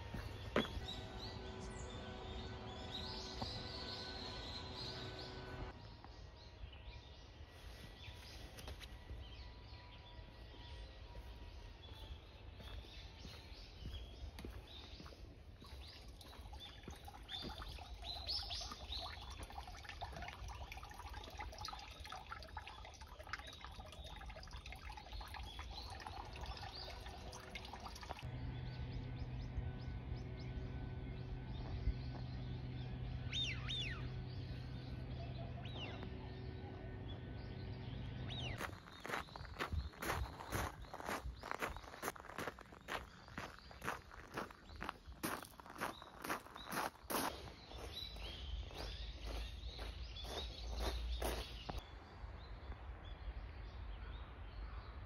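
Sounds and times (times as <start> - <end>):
small birds chirping: 11.2 - 51.8
water pouring into stone basin: 16.1 - 28.3.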